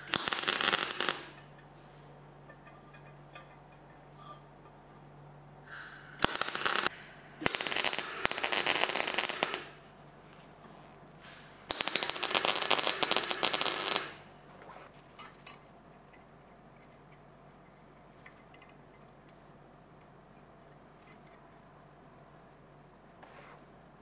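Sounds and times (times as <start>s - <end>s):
welder arc crackling: 0.0s - 1.4s, 5.8s - 9.9s, 11.3s - 14.3s.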